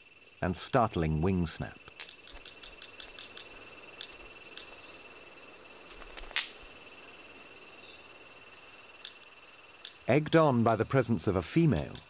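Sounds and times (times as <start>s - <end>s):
buzzing insect chorus: 0.0s - 12.0s
bird wing snaps: 1.9s - 4.7s, 5.9s - 6.6s.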